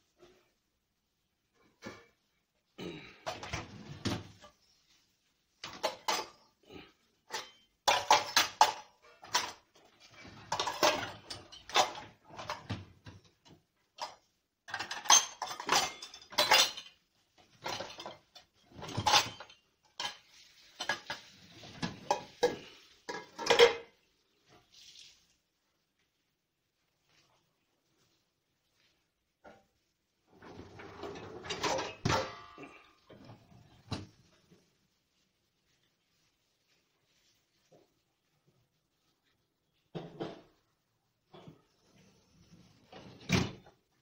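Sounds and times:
dishes clattering in dishwasher rack: 0:05.6 - 0:06.4, 0:07.3 - 0:13.2, 0:14.0 - 0:24.0, 0:30.3 - 0:34.2.

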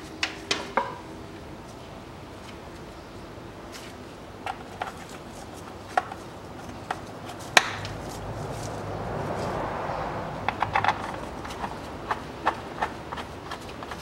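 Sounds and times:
low hum with rushing noise: 0:00.0 - 0:14.0
hand tool clicks and knocks: 0:10.4 - 0:14.0.

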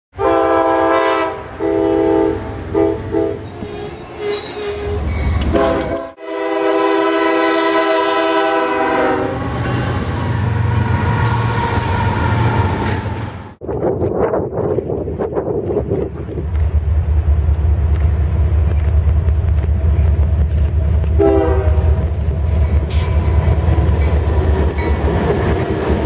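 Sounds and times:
locomotive air horn blasts: 0:00.2 - 0:10.2, 0:21.2 - 0:22.1
locomotive rumbling past: 0:00.2 - 0:26.0.

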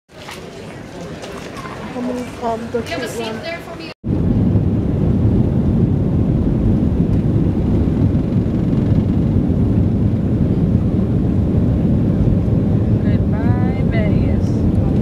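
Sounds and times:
jet engines rumbling in cabin: 0:04.1 - 0:15.0.

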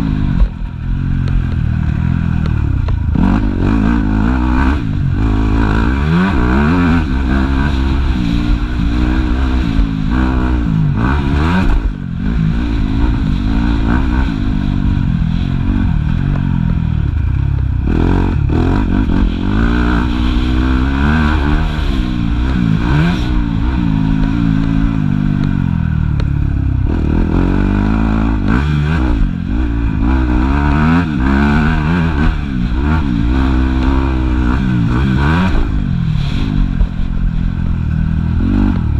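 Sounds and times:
motocross bike engine revving: 0:00.0 - 0:38.9.

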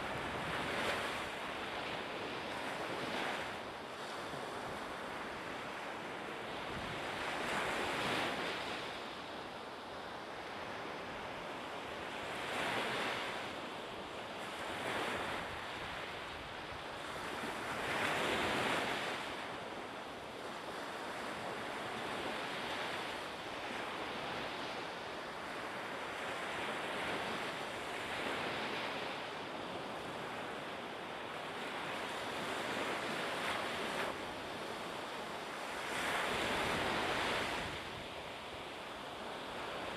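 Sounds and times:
wind: 0:00.0 - 0:39.9
sea waves washing in: 0:20.6 - 0:39.9.

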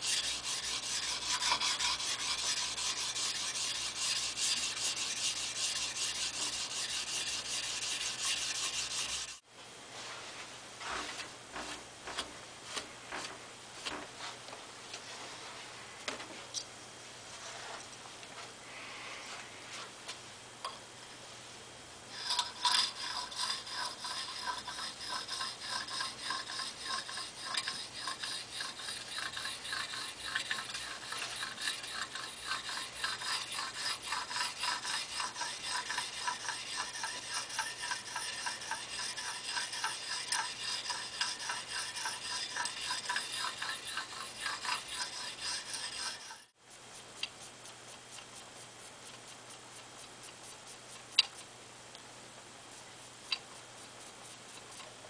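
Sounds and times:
file rasping on steel: 0:00.0 - 0:09.4, 0:22.1 - 0:48.5, 0:53.2 - 0:54.9.

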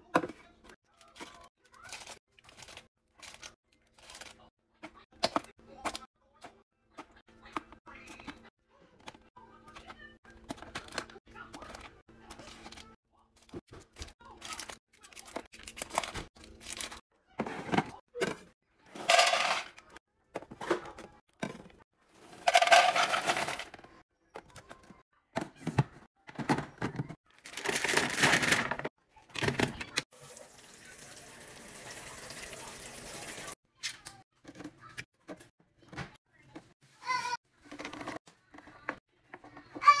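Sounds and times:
snack wrappers rustling: 0:01.8 - 0:04.5.

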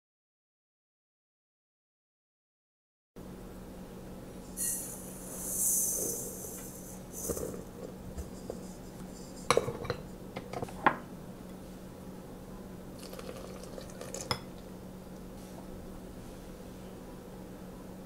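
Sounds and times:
flour pouring hiss: 0:04.6 - 0:07.7.

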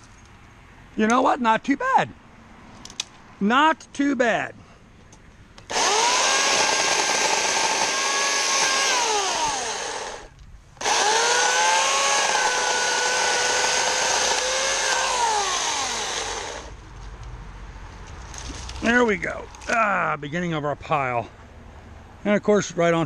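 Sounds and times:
electric chainsaw whining: 0:05.7 - 0:16.8.

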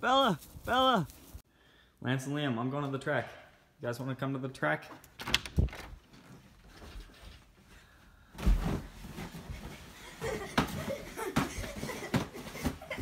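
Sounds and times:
children's voices and laughter: 0:10.0 - 0:13.0.

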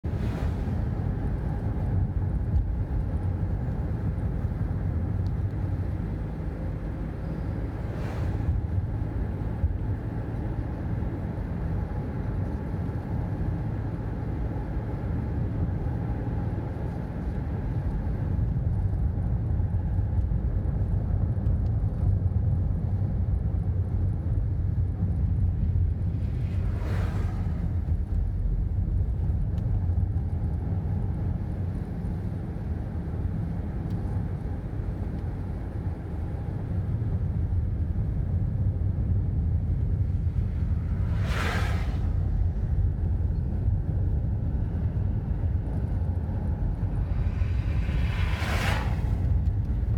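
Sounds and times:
car tyres and engine rumble: 0:00.0 - 0:49.9
passing car swishing: 0:00.1 - 0:01.0, 0:07.7 - 0:08.8, 0:26.1 - 0:28.4, 0:39.7 - 0:43.2, 0:44.7 - 0:49.9.

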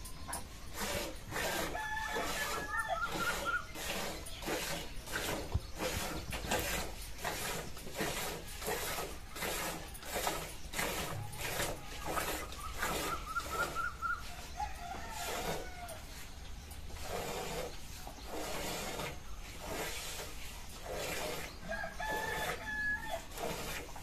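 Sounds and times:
hen clucking: 0:00.3 - 0:06.8, 0:11.0 - 0:16.0.

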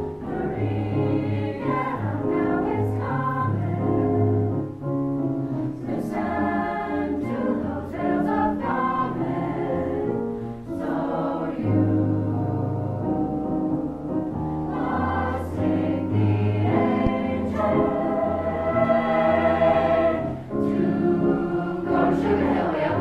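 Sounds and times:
mixed choir singing in harmony: 0:00.0 - 0:04.7, 0:05.7 - 0:23.0.

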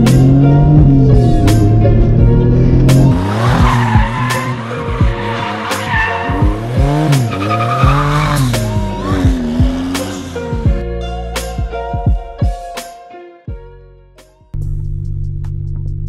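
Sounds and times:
car engine revving: 0:00.0 - 0:10.8
music with steady beat: 0:00.0 - 0:16.0
tires squealing: 0:01.1 - 0:10.8.

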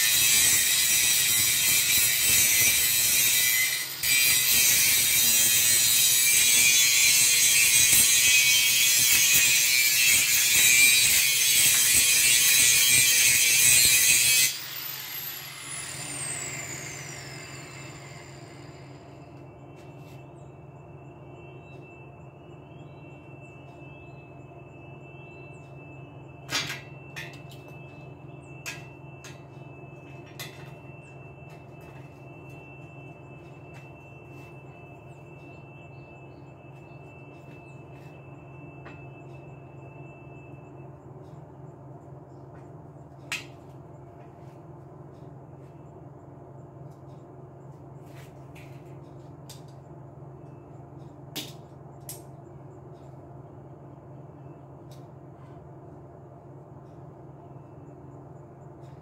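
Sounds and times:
thin high whine: 0:00.0 - 0:41.6
low machine hum: 0:14.5 - 0:59.0.

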